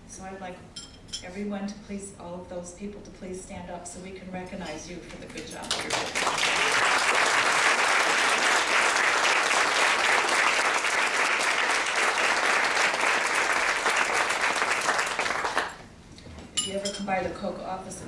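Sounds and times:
audience clapping: 5.7s - 15.8s.

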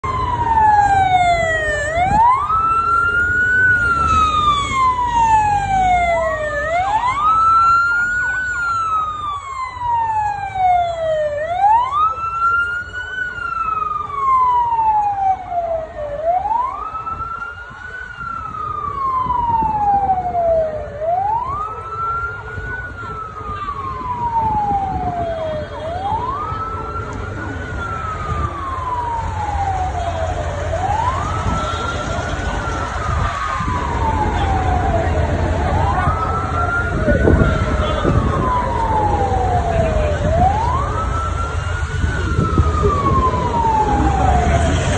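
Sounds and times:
low rumble of engines and traffic: 0.0s - 44.9s
siren wailing: 0.0s - 44.9s.

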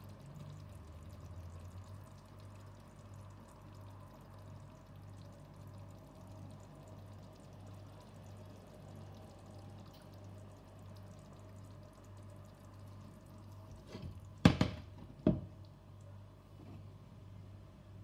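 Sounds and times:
steady low hum: 0.0s - 18.0s
light knocks on cooktop: 13.9s - 15.5s.

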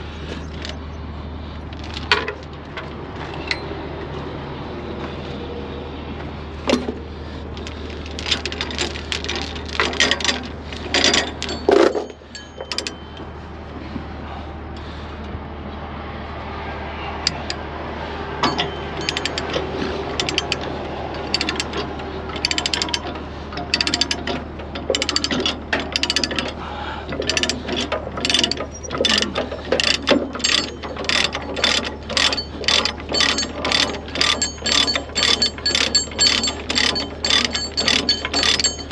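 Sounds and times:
ratchet clicking: 7.6s - 13.0s, 18.4s - 19.6s, 20.2s - 20.6s, 21.2s - 21.8s, 22.4s - 23.0s, 24.9s - 26.5s, 27.2s - 38.9s.

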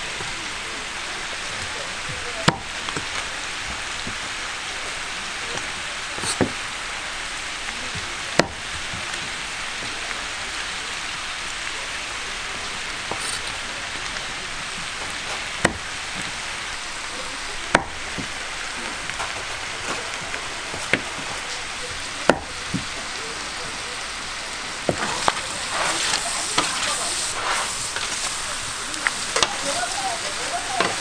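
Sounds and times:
meat sizzling on a griddle: 0.0s - 31.0s
knife chopping on wooden board: 2.4s - 2.7s, 6.2s - 6.6s, 8.4s - 8.6s, 15.6s - 15.8s, 17.7s - 18.3s, 22.3s - 22.9s.

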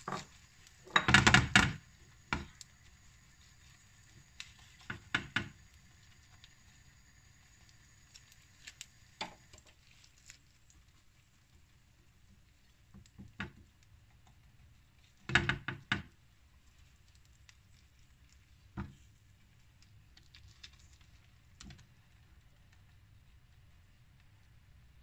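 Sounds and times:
kitchen utensils and dishes knocking: 0.9s - 1.7s.

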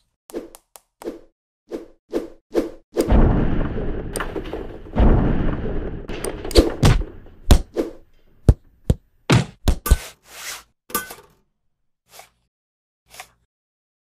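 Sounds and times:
long rushing crashes: 3.1s - 7.5s.

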